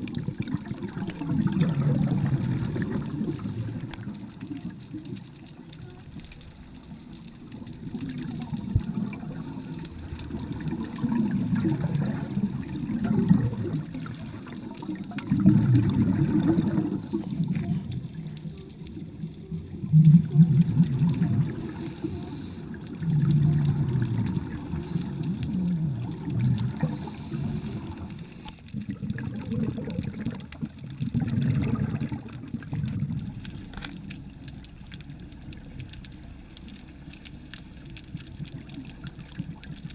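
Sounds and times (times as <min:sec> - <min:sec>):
underwater regulator bubbles: 0:00.0 - 0:39.9.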